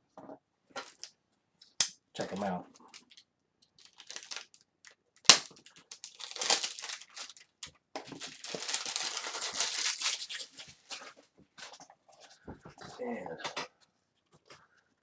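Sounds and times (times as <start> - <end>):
packaging crinkling: 2.8 - 11.1
egg carton snapping: 5.2 - 6.7.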